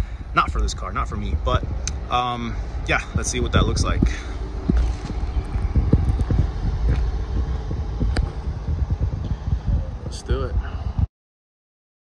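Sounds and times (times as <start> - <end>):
low rumble: 0.0 - 11.1
footsteps on gravel: 3.0 - 8.9.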